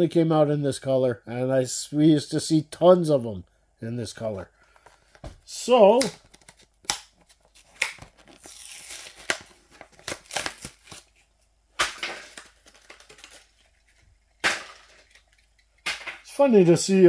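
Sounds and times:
packaging crinkling and tearing: 0:06.0 - 0:11.4, 0:12.0 - 0:14.1.

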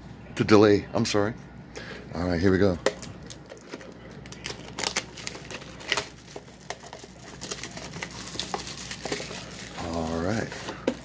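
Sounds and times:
plastic shrink-wrap tearing: 0:03.2 - 0:11.0.

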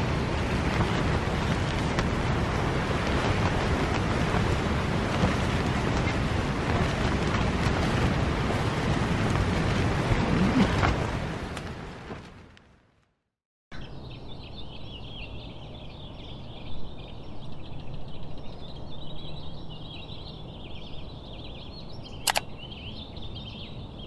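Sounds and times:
small birds chirping and twittering: 0:13.7 - 0:24.0
sharp click: 0:22.2 - 0:22.5.

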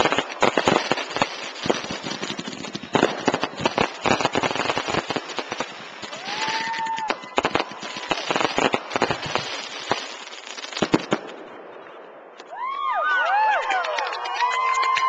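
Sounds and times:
fireworks crackling and banging: 0:00.0 - 0:15.0
people cheering and whooping: 0:06.0 - 0:08.6, 0:12.5 - 0:15.0.

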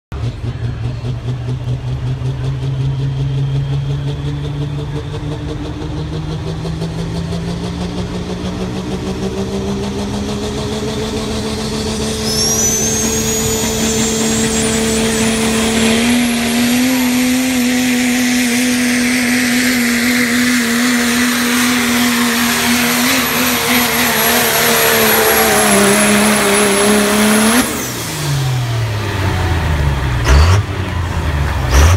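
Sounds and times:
diesel pickup engine at full throttle: 0:00.1 - 0:31.9
high turbo whistle: 0:10.6 - 0:28.5.

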